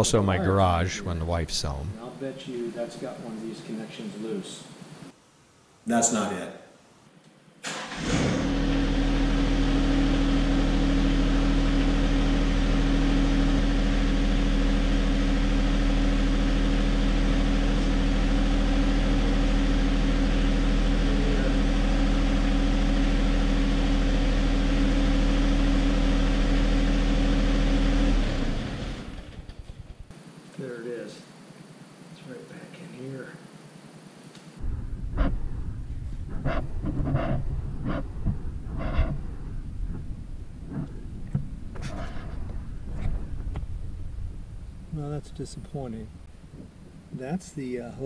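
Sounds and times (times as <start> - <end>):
tractor diesel engine running: 7.7 - 30.1.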